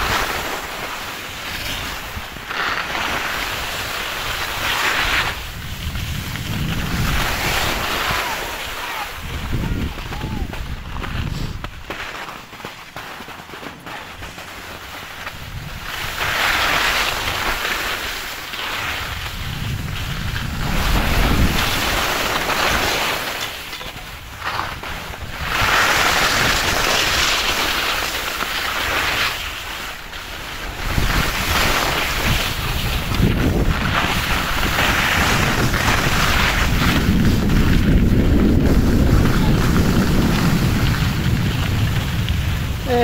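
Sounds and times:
skis scraping over snow: 0:00.0 - 0:43.0
wind buffeting microphone: 0:03.6 - 0:11.9, 0:15.3 - 0:16.4, 0:18.9 - 0:22.8, 0:30.6 - 0:43.0.

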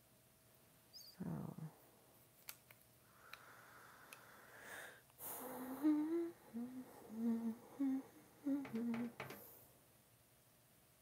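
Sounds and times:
woman humming a tune: 0:05.5 - 0:09.4.

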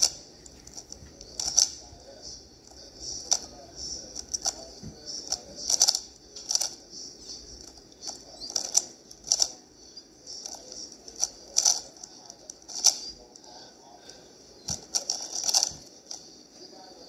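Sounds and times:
puzzle cube clicking as turned: 0:05.3 - 0:06.8, 0:08.5 - 0:09.5, 0:11.2 - 0:11.9, 0:14.7 - 0:15.7.

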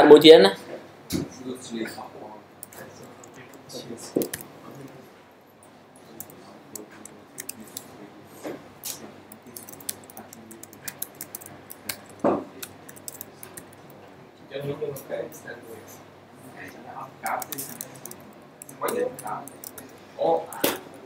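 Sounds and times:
keyboard typing clicks: 0:02.6 - 0:04.9, 0:06.0 - 0:07.9, 0:08.8 - 0:14.0, 0:17.2 - 0:21.0.

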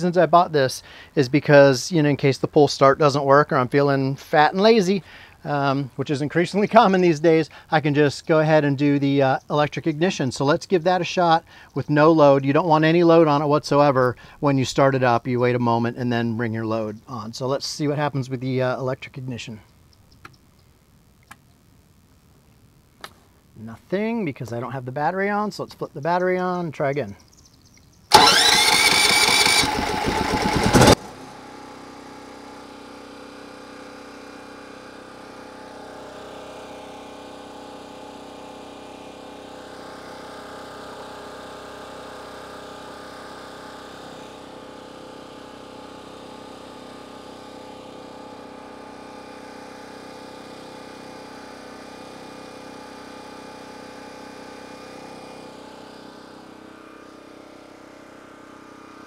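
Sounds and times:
generator engine starting and running: 0:28.1 - 0:59.0.

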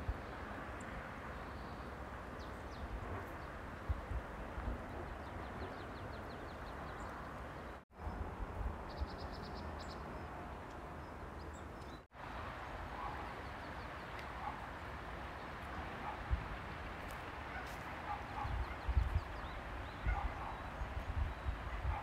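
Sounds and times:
outdoor noise: 0:00.0 - 0:22.0
wind rumble on microphone: 0:02.2 - 0:11.1, 0:15.5 - 0:22.0.

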